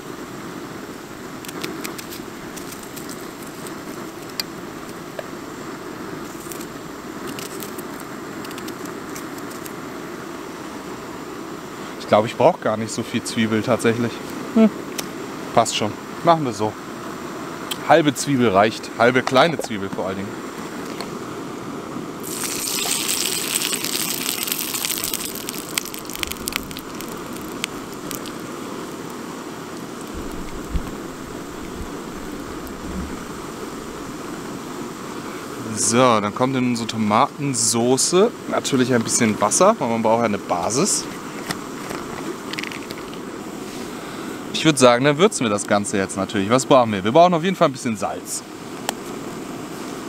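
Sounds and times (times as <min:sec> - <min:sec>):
bread rolls frying: 0:01.0 - 0:09.8, 0:22.2 - 0:36.0
oil spitting crackles: 0:01.4 - 0:05.2, 0:22.2 - 0:34.4, 0:41.1 - 0:43.3.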